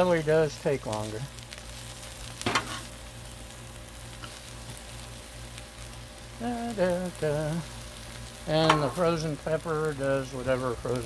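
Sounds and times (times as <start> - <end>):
vegetables sizzling on a griddle: 0.0 - 11.0
metal spatula scraping griddle: 2.4 - 2.9.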